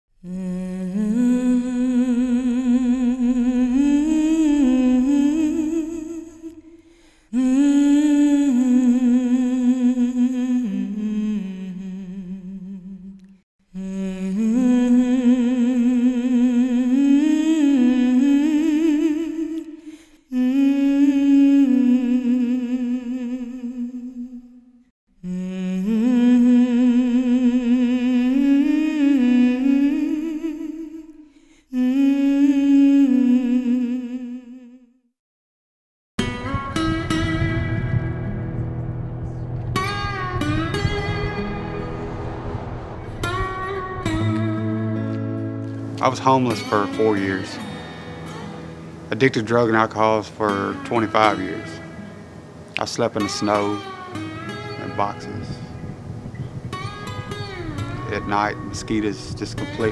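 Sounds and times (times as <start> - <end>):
person humming a slow melody: 0.2 - 35.0, 44.2 - 59.9.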